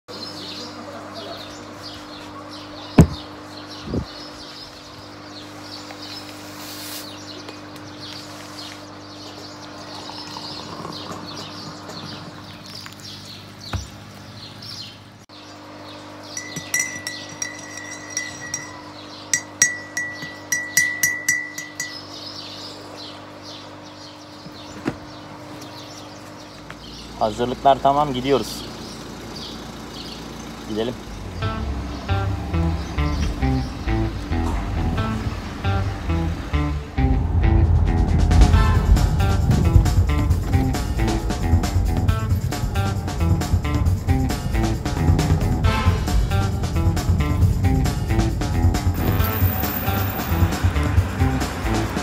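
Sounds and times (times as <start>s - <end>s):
sharp knock: 3.0s - 3.2s
spoon clinking in a porcelain mug: 16.4s - 22.0s
steady low hum: 31.0s - 52.0s.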